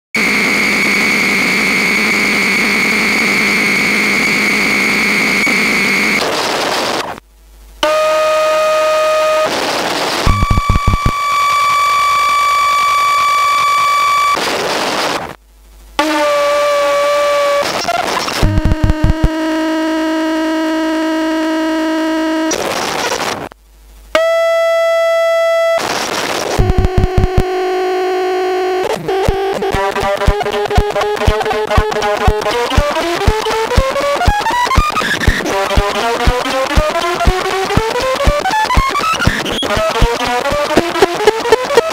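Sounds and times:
synthesizer noise drone: 0:08.4 - 0:14.3, 0:18.4 - 0:22.5, 0:26.6 - 0:41.9
high synthesizer tone: 0:10.3 - 0:11.2, 0:18.4 - 0:19.5, 0:26.6 - 0:41.9
synthesizer clicks: 0:10.3 - 0:11.2, 0:18.4 - 0:19.3.

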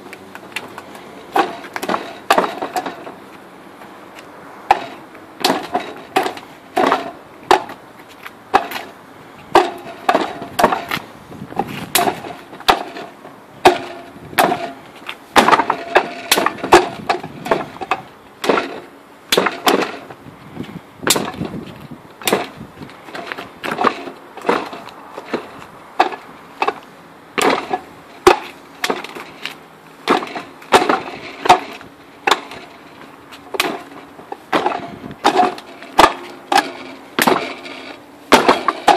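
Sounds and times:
wooden knocks and clacks: 0:00.4 - 0:03.2, 0:04.7 - 0:07.8, 0:09.5 - 0:11.0, 0:15.4 - 0:20.1, 0:21.1 - 0:26.8, 0:27.4 - 0:32.8, 0:33.5 - 0:38.9.

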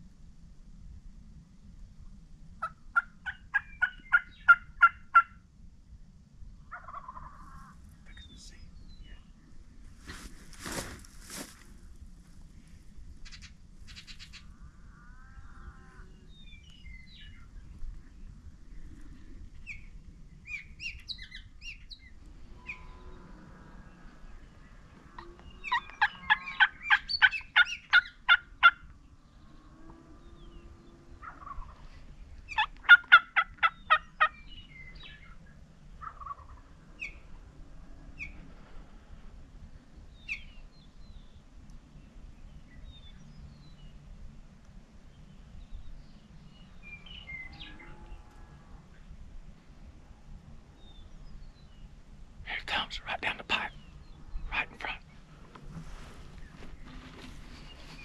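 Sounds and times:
turkey gobbling: 0:02.6 - 0:05.4, 0:06.7 - 0:07.6, 0:25.7 - 0:28.8, 0:31.2 - 0:31.7, 0:32.5 - 0:34.4, 0:36.0 - 0:36.6.

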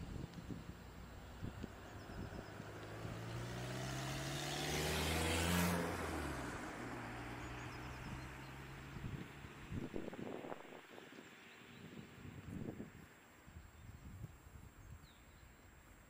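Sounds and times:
car driving past: 0:01.0 - 0:11.8.

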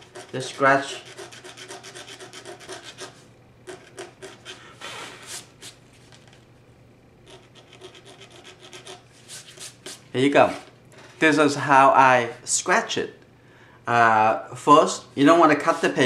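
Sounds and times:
knife blade scratching paper: 0:00.0 - 0:05.8, 0:07.2 - 0:10.0.

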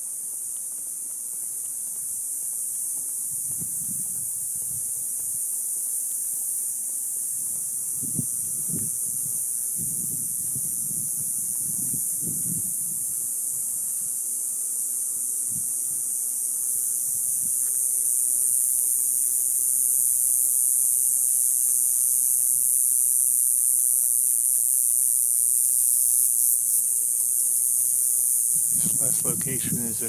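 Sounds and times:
cicadas buzzing: 0:00.0 - 0:30.0.

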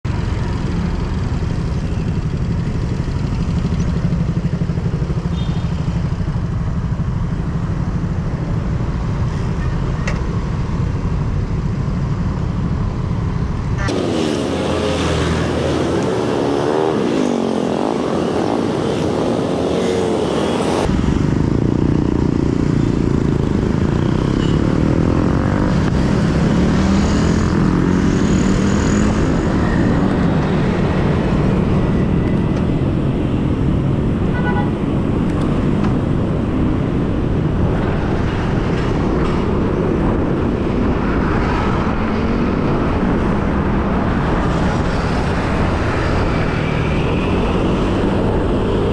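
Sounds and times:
motorbike engines revving: 0:13.7 - 0:48.9.

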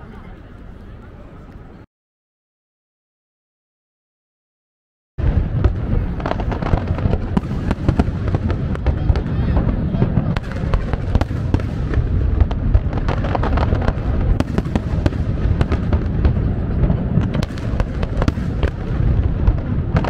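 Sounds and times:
fireworks bangs and crackles: 0:05.2 - 0:20.0
low booming: 0:05.2 - 0:20.0.

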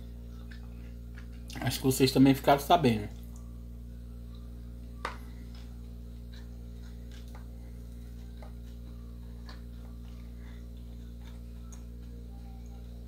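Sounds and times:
steady low hum: 0:00.0 - 0:13.0
chewing clicks: 0:05.5 - 0:12.9.

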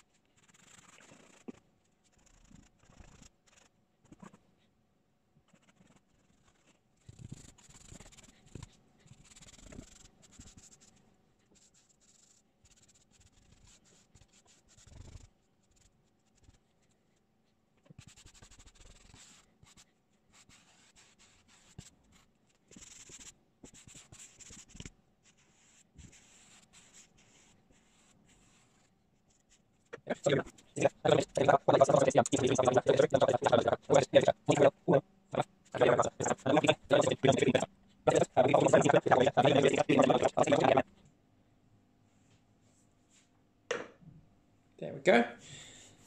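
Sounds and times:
paintbrush scratching rough surface: 0:30.1 - 0:40.8.

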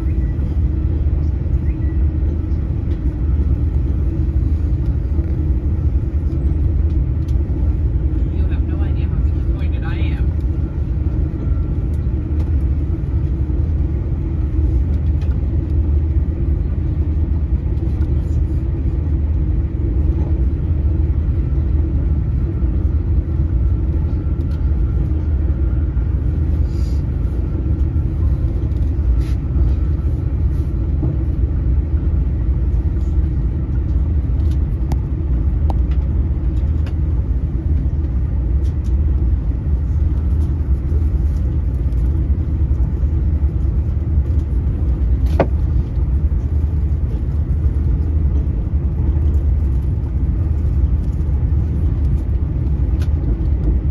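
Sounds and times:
train wheels rumbling on rail: 0:00.0 - 0:53.9.

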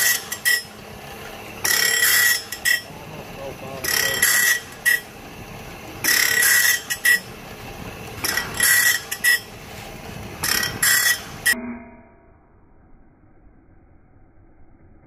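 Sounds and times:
grinding wheel rasping on saw teeth: 0:00.0 - 0:07.4, 0:08.0 - 0:09.6, 0:10.4 - 0:11.6
machine running noise: 0:00.0 - 0:11.6.

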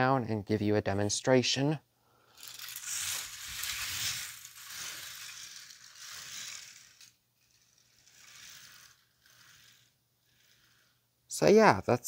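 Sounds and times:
toy roller coaster cars rattling: 0:02.3 - 0:10.9.

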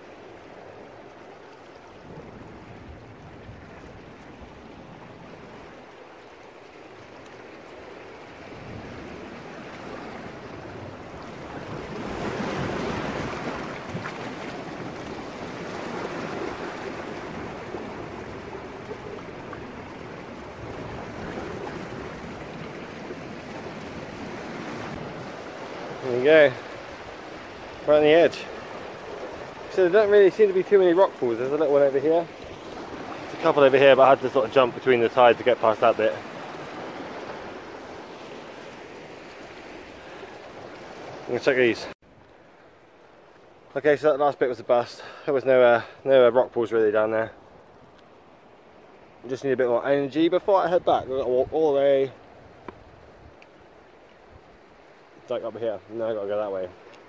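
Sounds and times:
sea waves splashing against rocks: 0:00.0 - 0:42.0.

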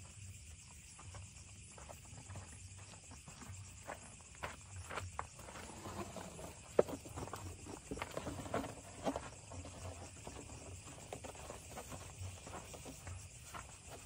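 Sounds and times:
footsteps on hard ground: 0:00.7 - 0:14.0
camping gear knocks and rustles: 0:05.0 - 0:14.0.

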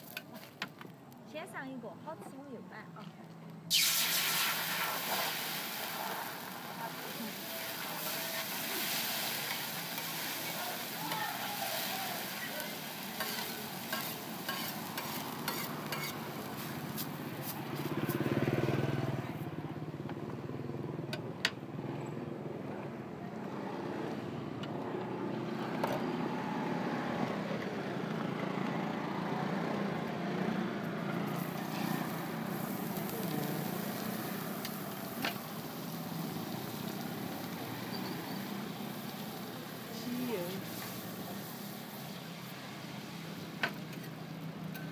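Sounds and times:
low traffic rumble: 0:00.0 - 0:44.9
pancake sizzling in oil: 0:03.7 - 0:17.9, 0:31.2 - 0:44.9
vehicle passing: 0:11.6 - 0:21.0, 0:21.7 - 0:43.4.

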